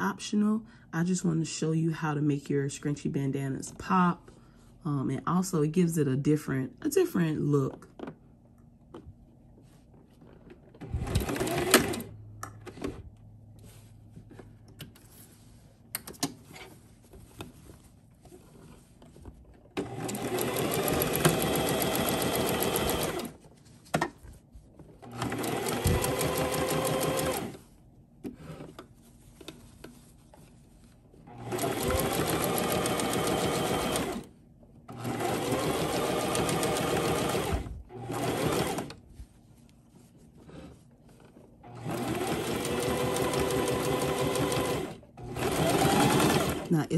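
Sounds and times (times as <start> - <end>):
sewing machine stitching: 10.8 - 12.1, 19.8 - 23.4, 25.0 - 27.6, 31.3 - 34.3, 34.9 - 39.0, 41.6 - 46.8.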